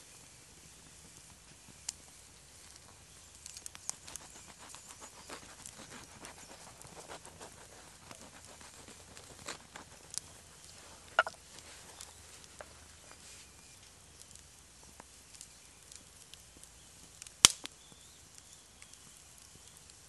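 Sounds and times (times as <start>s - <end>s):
knife sawing through bread crust: 4.2s - 10.2s.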